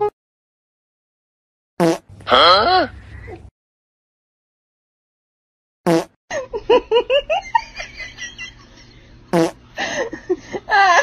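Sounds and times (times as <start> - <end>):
fart sound effects: 1.8 - 2.7, 5.9 - 6.2, 9.3 - 9.6
person laughing and chattering: 6.3 - 9.0, 9.8 - 11.0.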